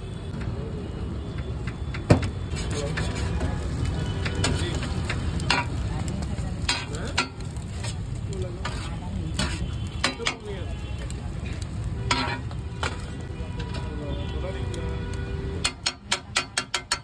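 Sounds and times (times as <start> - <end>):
omelette sizzling on griddle: 0.0 - 17.0
metal spatula scraping griddle: 2.4 - 5.8, 6.6 - 10.5, 11.4 - 13.9.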